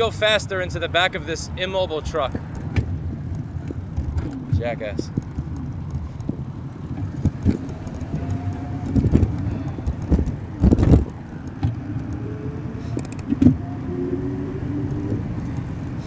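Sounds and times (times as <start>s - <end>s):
low rumble of traffic: 0.0s - 16.0s
bicycle knocks and rattles: 2.3s - 11.8s.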